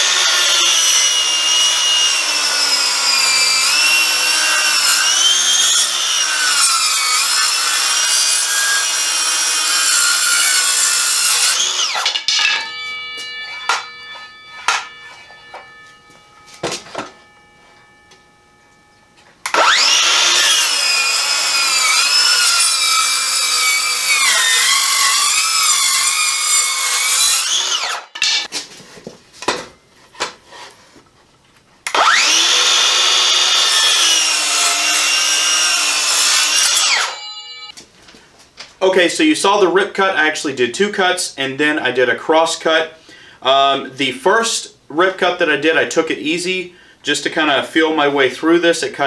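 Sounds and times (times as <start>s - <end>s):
circular saw cutting wood: 0.0s - 28.5s, 31.9s - 37.7s.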